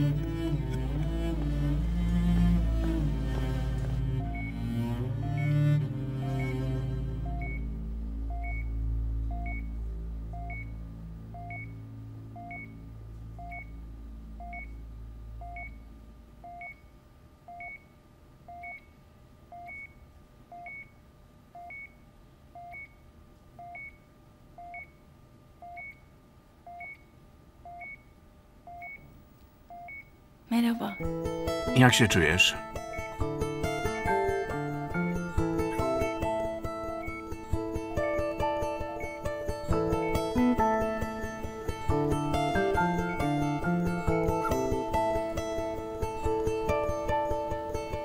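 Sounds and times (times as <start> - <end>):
low music drone: 0.0 - 16.2
patient monitor beeping: 0.0 - 25.0, 25.6 - 45.2.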